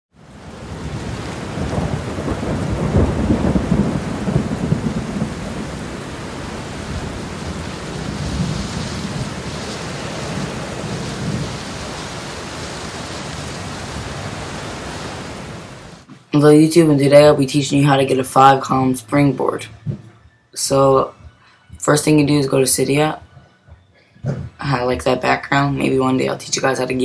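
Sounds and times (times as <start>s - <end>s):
steady rain: 0.1s - 16.1s
thunder rumbling: 0.2s - 20.0s.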